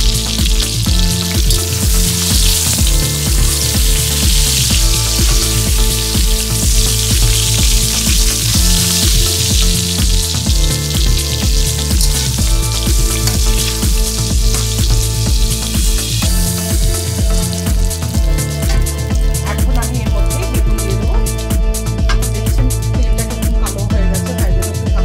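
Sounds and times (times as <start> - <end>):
hot oil sizzling in a wok: 0.0 - 19.8.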